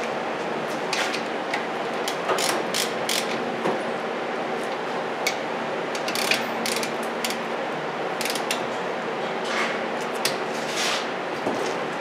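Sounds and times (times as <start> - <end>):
hand ratchet clicking: 2.4 - 3.4, 6.0 - 7.4, 8.2 - 8.6.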